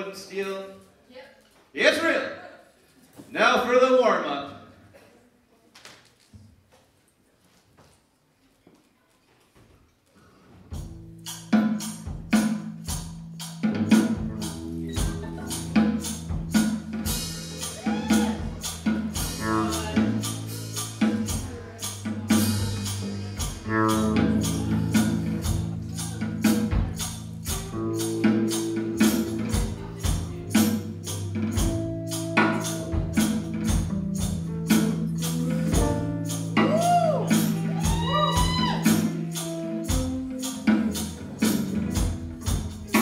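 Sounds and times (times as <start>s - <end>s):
fast percussion beat: 10.8s - 43.0s
sustained bass notes: 10.8s - 43.0s.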